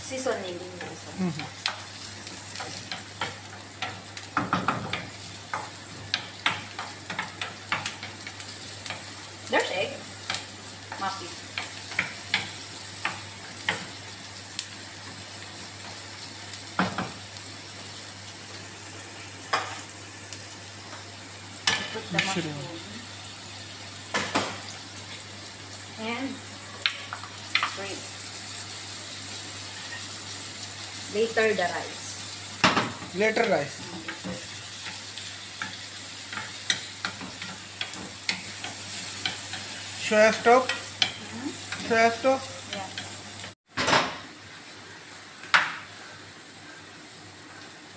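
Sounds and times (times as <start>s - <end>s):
vegetables sizzling in a frying pan: 0.0s - 47.9s
spatula tapping and scraping pan: 2.5s - 9.1s.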